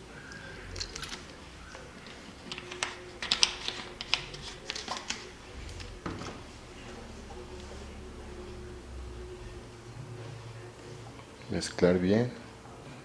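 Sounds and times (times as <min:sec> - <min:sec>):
plastic bottle clicking and crackling: 0:02.0 - 0:05.3.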